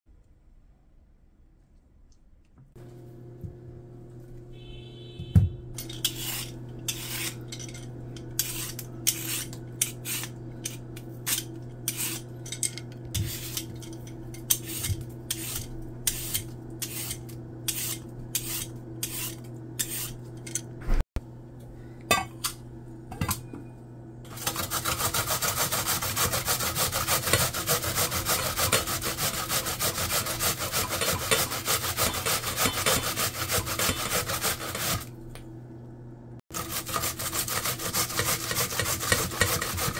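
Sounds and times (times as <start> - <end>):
vegetable peeler scraping: 5.8 - 20.5, 24.3 - 35.1, 36.5 - 39.9
radish rasping on metal grater: 6.0 - 7.4, 8.4 - 12.3, 14.5 - 20.2, 24.3 - 35.1, 36.5 - 39.9.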